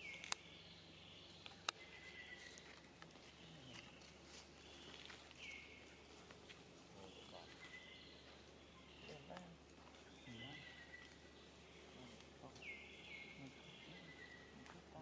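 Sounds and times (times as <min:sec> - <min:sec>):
sharp clicks: 0:00.0 - 0:00.4.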